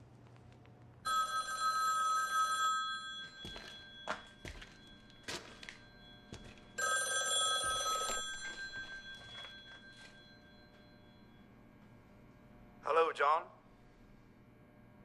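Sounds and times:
telephone ringing: 1.0s - 11.5s.

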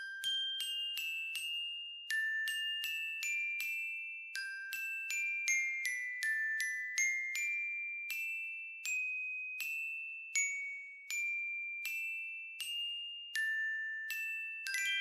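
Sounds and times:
slow bell-like melody: 0.0s - 15.0s.

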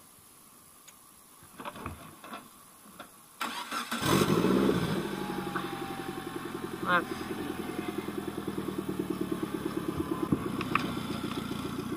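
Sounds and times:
lawn tractor engine starting and idling: 3.4s - 11.9s.

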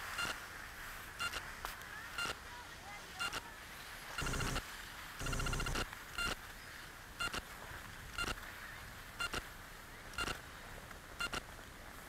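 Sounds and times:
faint background hiss: 0.0s - 12.0s
short electronic beeps: 4.2s - 4.6s, 5.2s - 6.4s.

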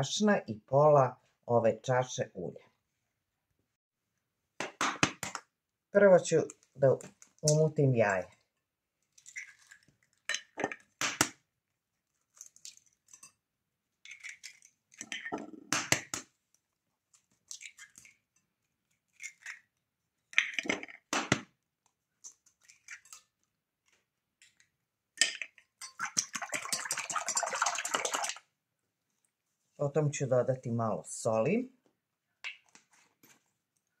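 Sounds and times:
eggs cracking on glass bowl: 25.2s - 28.4s
whisk beating in glass bowl: 26.2s - 28.4s.

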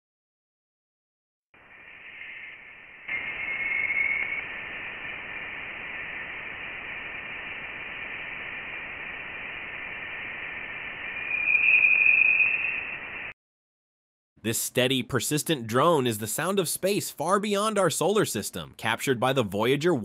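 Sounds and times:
whistling tone: 1.6s - 4.5s, 11.0s - 13.4s
steady hiss: 1.6s - 13.3s.

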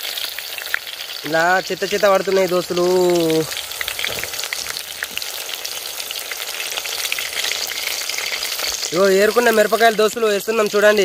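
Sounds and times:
onions sizzling in oil: 0.0s - 11.0s
small crackles: 2.2s - 10.3s.

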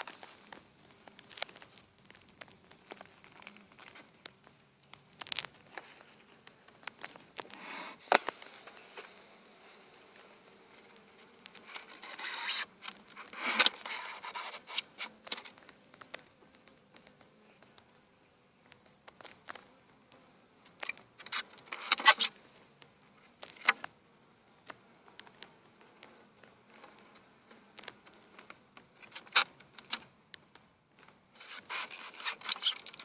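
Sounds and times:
hive tool scraping wooden frames: 5.2s - 18.0s, 20.6s - 24.0s, 25.0s - 30.1s, 31.4s - 33.0s.

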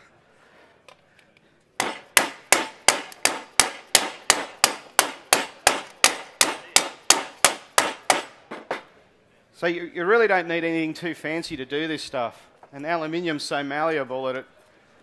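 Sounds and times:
hammering on metal panel: 1.8s - 8.8s.

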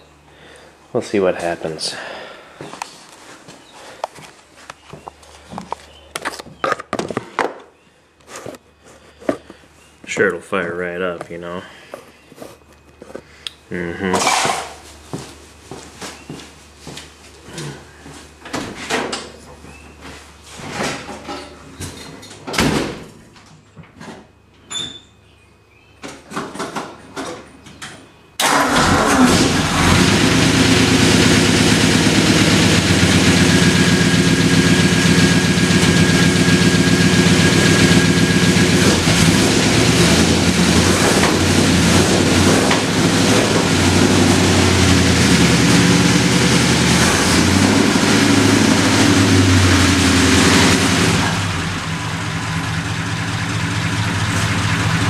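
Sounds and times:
car engine running: 28.4s - 55.0s.

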